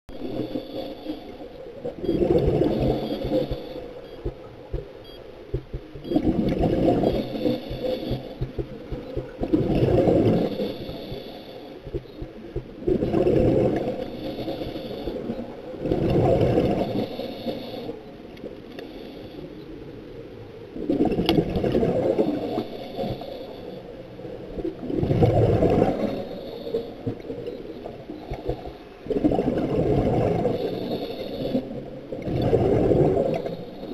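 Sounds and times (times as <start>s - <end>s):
exhaled bubbles gurgling underwater: 0.1s - 33.9s
diver breathing through regulator: 6.2s - 8.5s, 9.8s - 11.8s, 16.4s - 18.1s, 22.0s - 23.9s, 30.4s - 33.9s.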